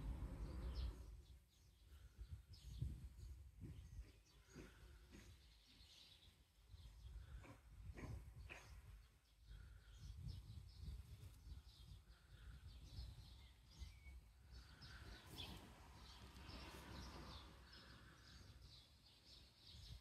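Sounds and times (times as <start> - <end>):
low rumble: 0.0 - 1.1
small birds chirping: 0.0 - 20.0.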